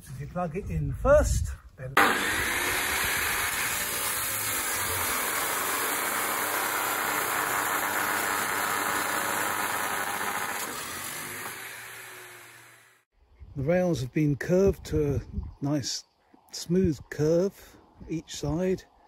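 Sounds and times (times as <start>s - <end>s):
chop saw grinding through steel: 2.0s - 13.1s.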